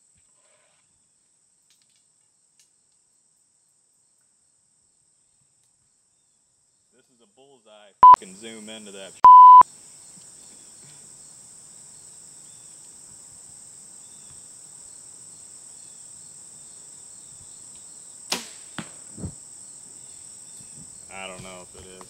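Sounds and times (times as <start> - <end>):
crickets chirping: 8.0 - 22.0
censor bleep tone: 9.2 - 9.6
bow being shot: 18.3 - 19.4.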